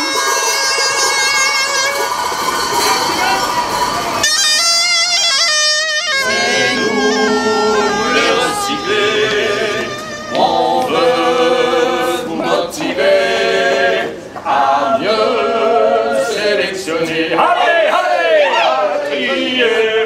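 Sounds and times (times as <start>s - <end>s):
group singing a cappella: 6.2s - 20.0s.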